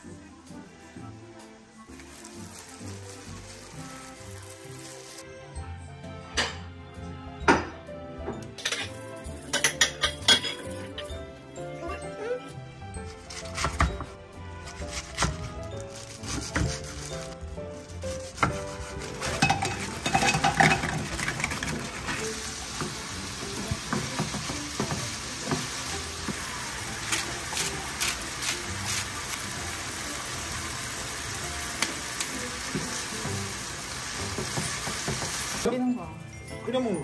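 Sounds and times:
food sizzling in a frying pan: 1.5s - 5.3s, 16.8s - 35.7s
spatula scraping a pan: 16.2s - 22.2s.

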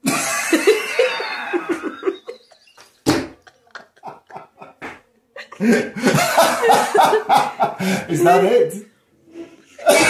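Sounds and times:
man laughing heartily: 0.0s - 4.8s, 5.4s - 8.1s.

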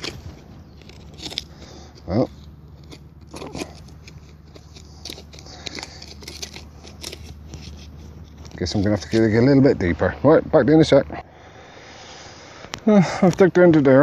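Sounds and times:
probe scraping soil and stones: 0.0s - 11.1s.

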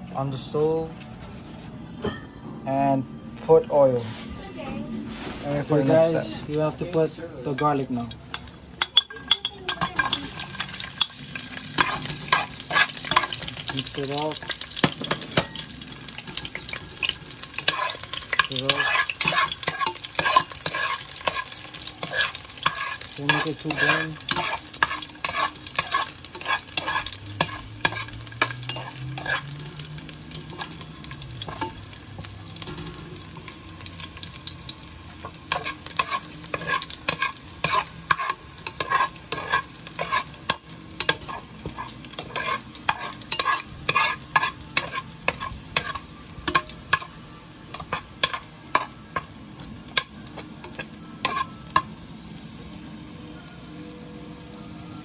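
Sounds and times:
garlic sizzling in oil: 5.0s - 55.0s
metal spoon scraping a pot: 9.0s - 31.8s, 35.2s - 47.1s, 50.0s - 51.6s.

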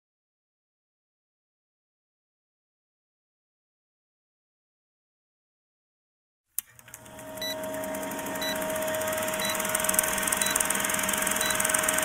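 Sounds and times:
film projector clatter: 6.6s - 12.0s
steady hum tone: 7.1s - 12.0s.

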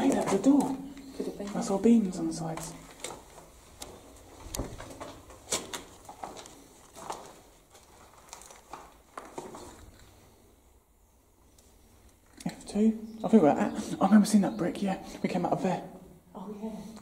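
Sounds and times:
footsteps on gritty concrete: 0.0s - 9.9s.

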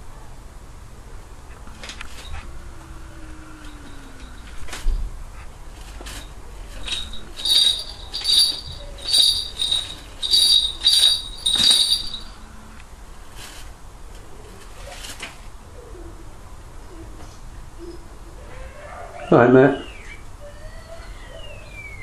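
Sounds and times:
small bells jingling: 6.8s - 12.4s.

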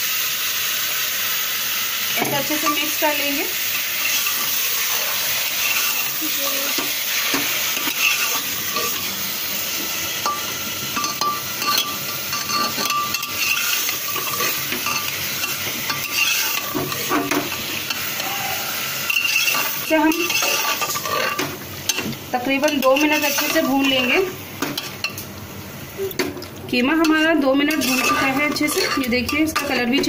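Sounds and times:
meat sizzling in hot oil: 0.0s - 26.0s, 26.7s - 30.0s
metal spoon scraping pot: 7.8s - 9.1s, 11.0s - 18.1s, 19.1s - 22.0s, 27.0s - 30.0s.

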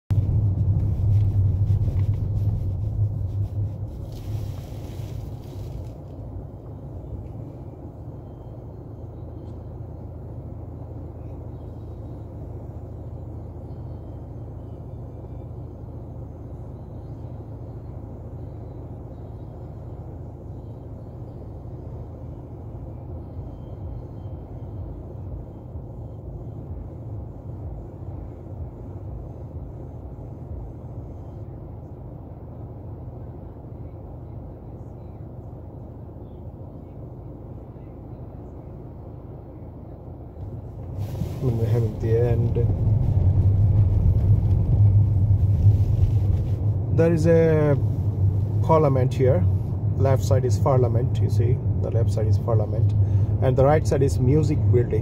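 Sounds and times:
car engine idling: 0.0s - 55.0s.

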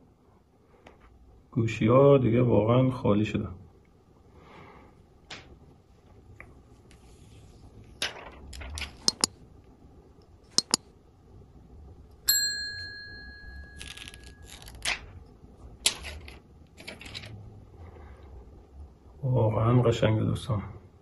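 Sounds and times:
hands tapping and clicking phone: 9.0s - 9.3s, 10.6s - 10.8s
ringing ding: 12.3s - 14.4s.

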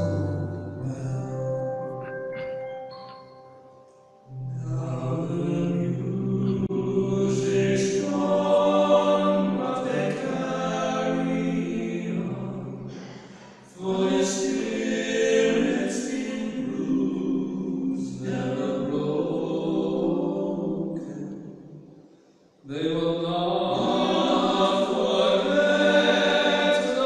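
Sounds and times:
men singing in harmony: 4.4s - 12.9s, 13.7s - 21.3s, 22.7s - 27.0s.

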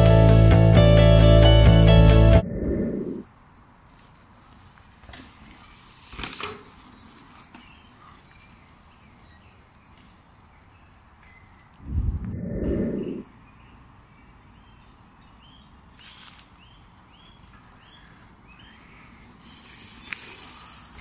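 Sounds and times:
low rumble: 2.2s - 3.2s, 11.8s - 13.2s
small birds chirping: 2.6s - 21.0s
mountain bike tyre rush: 4.1s - 11.0s, 15.9s - 21.0s.

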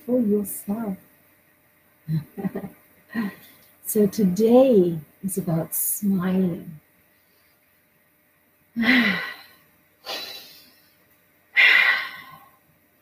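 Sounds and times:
woman breathy exhalations: 8.8s - 10.9s, 11.6s - 12.5s.

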